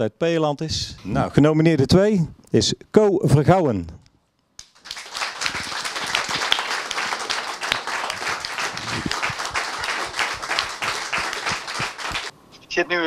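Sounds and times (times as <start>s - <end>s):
people applauding: 4.6s - 12.3s.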